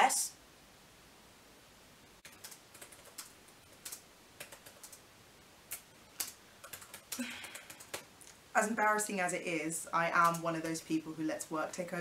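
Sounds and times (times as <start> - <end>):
laptop keyboard typing: 2.2 - 5.0, 5.7 - 8.1, 10.1 - 11.0.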